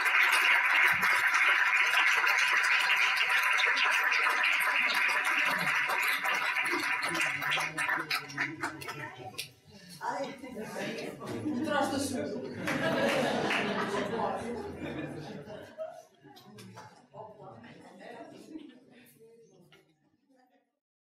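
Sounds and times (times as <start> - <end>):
audience applauding: 0.0 - 9.4, 12.6 - 14.4.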